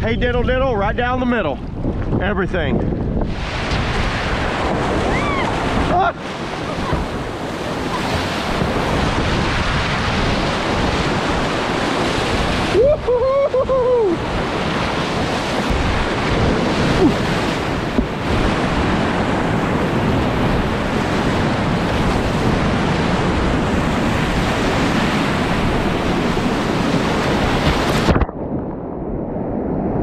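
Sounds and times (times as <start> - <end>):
wind buffeting microphone: 0.0 - 30.0
wave washing over camera: 1.6 - 30.0
whitewater rapids rushing: 3.6 - 28.2.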